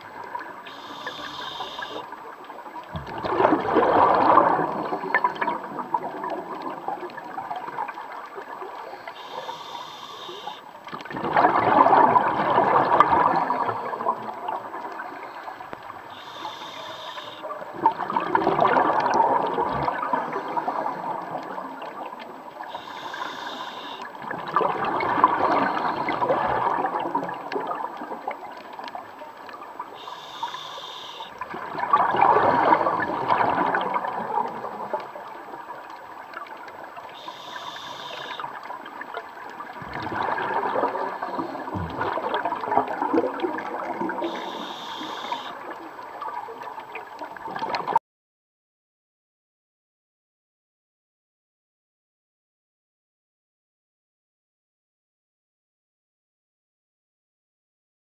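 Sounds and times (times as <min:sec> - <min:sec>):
diver breathing through regulator: 0:00.7 - 0:02.0, 0:09.0 - 0:10.6, 0:16.1 - 0:17.4, 0:22.7 - 0:24.0, 0:30.0 - 0:31.4, 0:37.2 - 0:38.5, 0:44.3 - 0:45.6
rush of exhaled bubbles: 0:02.9 - 0:08.7, 0:11.0 - 0:15.7, 0:17.2 - 0:23.4, 0:24.2 - 0:28.8, 0:31.4 - 0:48.0.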